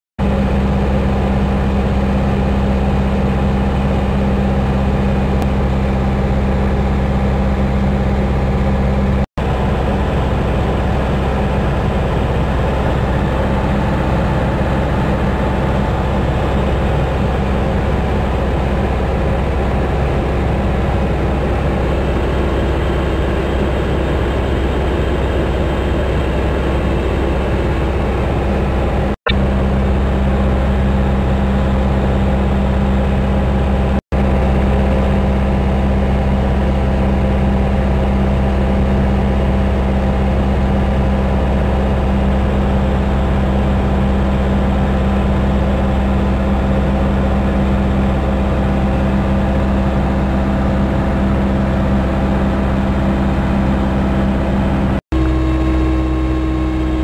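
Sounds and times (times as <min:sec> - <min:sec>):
propeller plane engine drone: 0:00.2 - 0:57.0.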